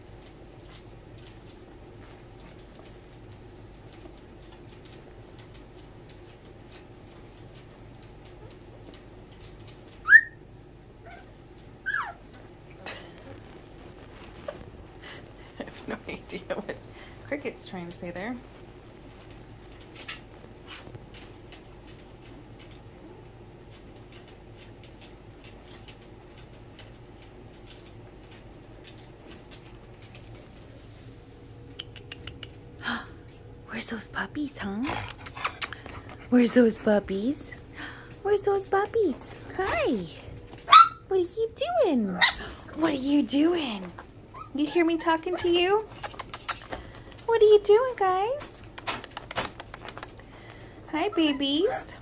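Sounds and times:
steady low hum: 0.0 - 52.0
puppies yelping: 10.0 - 10.4, 11.0 - 12.3, 40.6 - 41.1, 44.2 - 45.5
puppies moving on bedding: 11.0 - 31.8.

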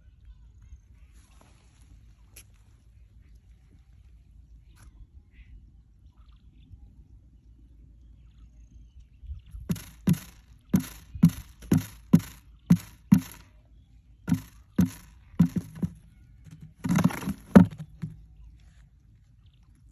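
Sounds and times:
bird scuffling: 9.7 - 13.5, 14.3 - 18.8
quail pecking on cardboard: 9.7 - 13.5, 14.3 - 18.8.

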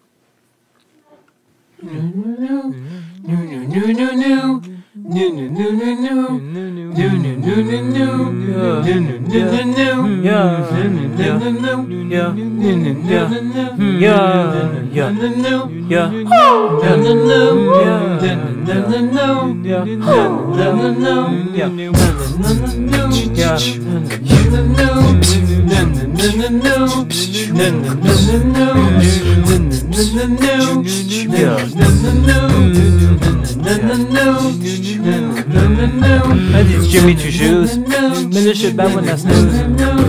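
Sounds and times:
person humming a melody: 1.8 - 9.8, 16.0 - 40.0
low sung bass note: 16.3 - 18.2, 20.0 - 21.3
falling vocal swoops: 16.3 - 18.8, 20.0 - 21.9.

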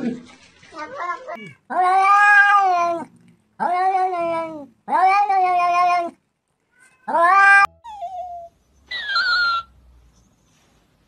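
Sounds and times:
cat meowing loudly: 1.4 - 3.0, 3.6 - 7.8.

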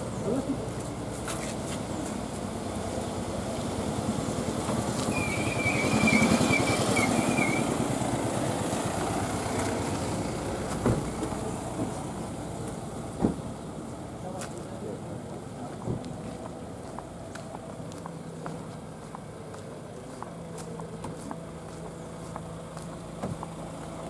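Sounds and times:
car driving past: 3.6 - 12.0.

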